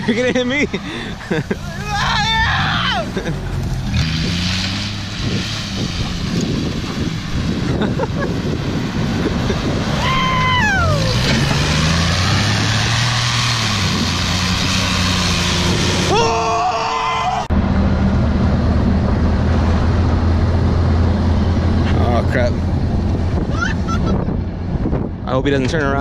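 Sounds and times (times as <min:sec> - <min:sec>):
pickup truck engine revving: 0:00.0 - 0:16.3
truck driving drone: 0:00.0 - 0:26.0
wind rushing: 0:02.2 - 0:16.2.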